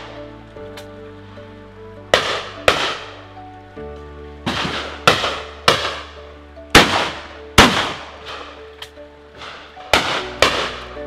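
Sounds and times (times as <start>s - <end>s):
background music: 0.0s - 11.0s
shotgun shots: 2.1s - 3.2s, 4.5s - 6.2s, 6.8s - 8.5s, 9.4s - 10.9s.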